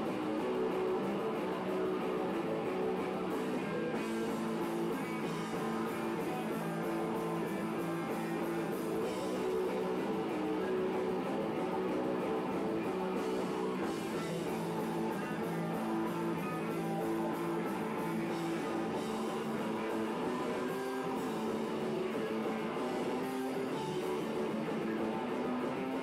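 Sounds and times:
rock band playing live: 0:00.0 - 0:26.0.

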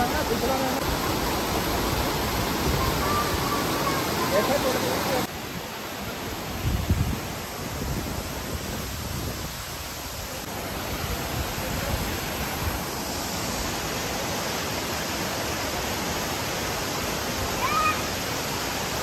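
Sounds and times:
small waterfall pouring over rocks: 0:00.0 - 0:19.0.

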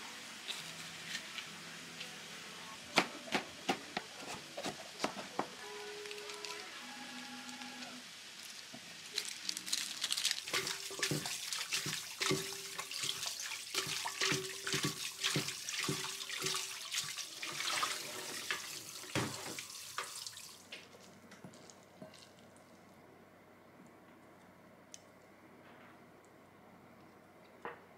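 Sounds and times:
tap water splashing into sink: 0:10.6 - 0:20.4.

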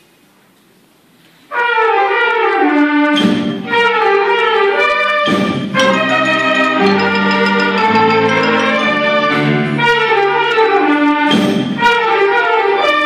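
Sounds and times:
wind band playing: 0:01.5 - 0:13.0.

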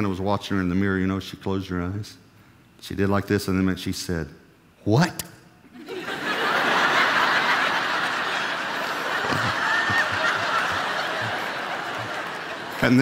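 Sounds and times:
crowd laughing: 0:05.7 - 0:13.0.

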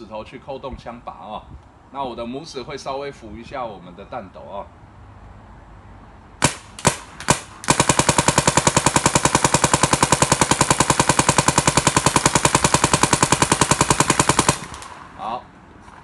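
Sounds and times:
paintball marker firing: 0:06.4 - 0:15.0.

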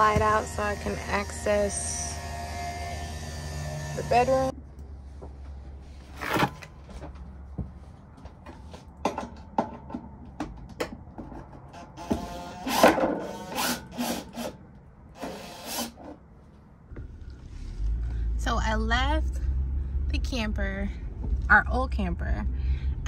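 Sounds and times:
knocks and clatter of handling: 0:06.1 - 0:11.7
cordless drill driving screws: 0:15.2 - 0:16.0.

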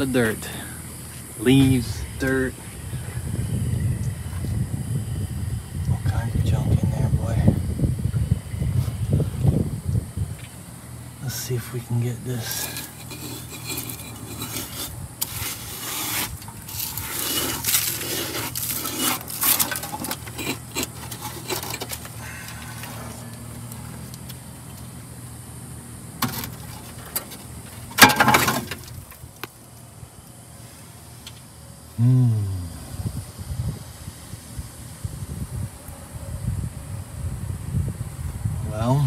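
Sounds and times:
debris rustling and scraping: 0:11.3 - 0:25.1, 0:26.2 - 0:29.9.

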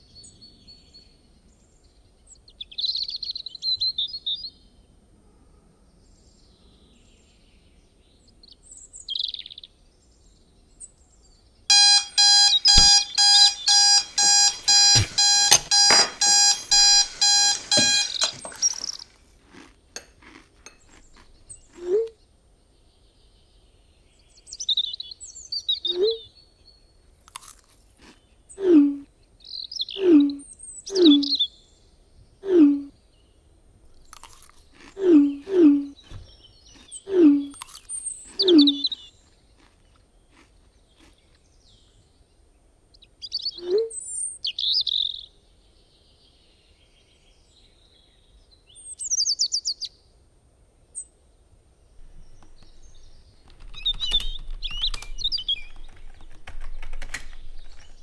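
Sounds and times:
birds chirping: 0:06.4 - 0:19.6, 0:20.6 - 0:26.8, 0:28.0 - 0:49.9, 0:51.9 - 0:58.0
alarm clock beeping: 0:11.7 - 0:19.0
small clicks and knocks: 0:52.0 - 0:58.0.

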